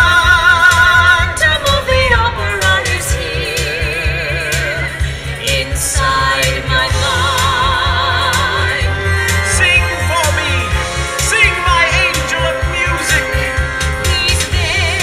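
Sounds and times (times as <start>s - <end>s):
musical accompaniment with pulsing bass: 0.0s - 15.0s
person singing with vibrato: 0.0s - 15.0s.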